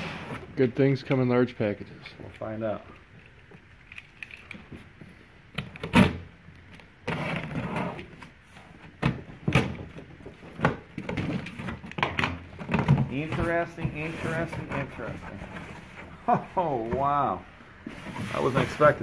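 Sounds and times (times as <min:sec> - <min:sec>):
cardboard rustling: 0:07.0 - 0:19.0
box flaps scraping: 0:12.7 - 0:16.2, 0:17.8 - 0:19.0.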